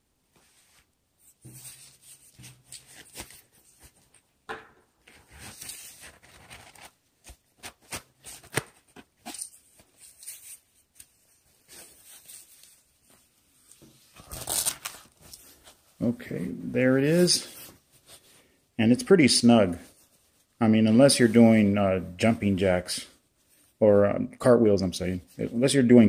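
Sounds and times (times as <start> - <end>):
holster rustling and scraping: 0.3 - 4.4.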